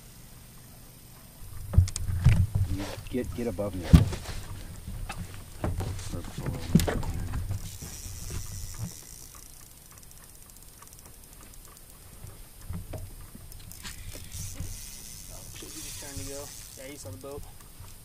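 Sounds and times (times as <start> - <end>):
fishing reel ticking: 6.1 - 18.0
sharp clicks: 6.7 - 17.7.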